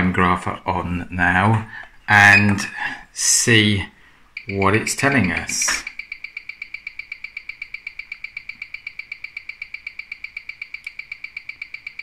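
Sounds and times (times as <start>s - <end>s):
watch ticking through speaker: 4.4s - 12.0s.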